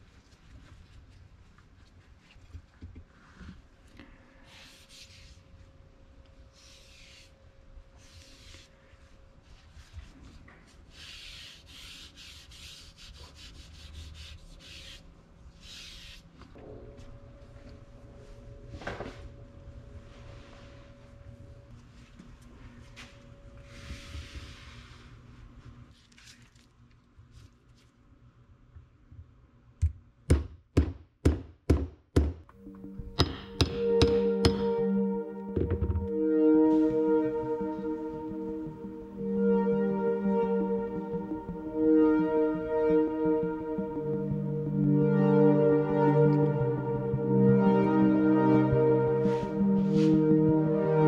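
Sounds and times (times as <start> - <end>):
cloth rubbing on wood: 9.6 - 16.3
hammer knocking on wedge: 33.0 - 34.7.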